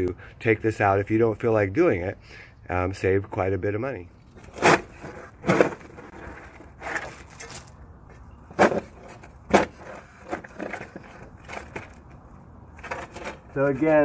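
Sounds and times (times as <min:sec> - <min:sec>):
spade crunching into gravel: 0:04.4 - 0:07.8, 0:08.5 - 0:12.0.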